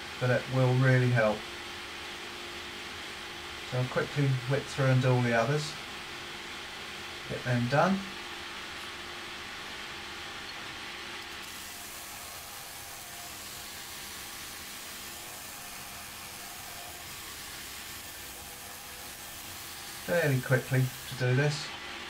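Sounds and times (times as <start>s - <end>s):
belt grinder running: 11.2s - 21.7s
steel bar grinding hiss: 11.3s - 21.7s.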